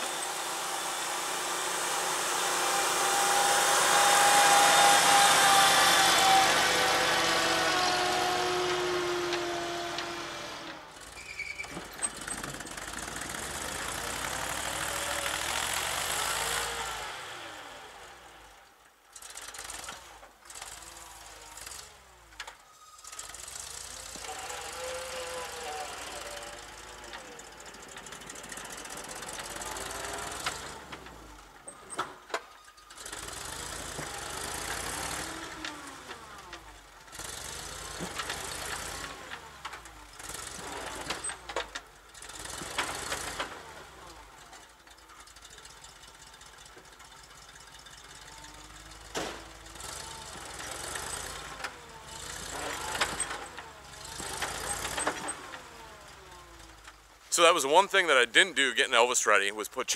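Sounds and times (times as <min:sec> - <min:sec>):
truck engine revving: 0:00.0 - 0:11.2, 0:11.8 - 0:18.5, 0:23.2 - 0:31.7, 0:33.0 - 0:44.3, 0:48.3 - 0:56.8
tires spinning: 0:00.0 - 0:18.4, 0:23.0 - 0:32.3, 0:32.9 - 0:44.5, 0:47.0 - 0:58.2.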